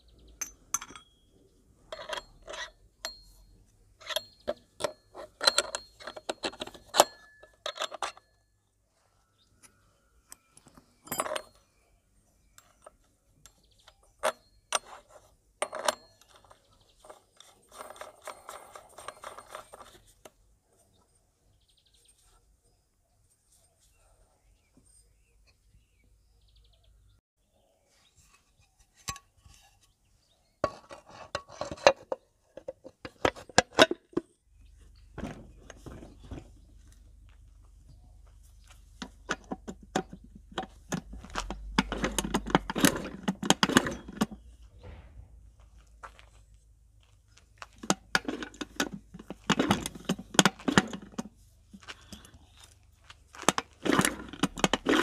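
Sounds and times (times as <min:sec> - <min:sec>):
metal parts and tools clinking: 0:00.3 - 0:08.6, 0:10.3 - 0:20.4, 0:30.6 - 0:37.6, 0:38.4 - 0:55.0.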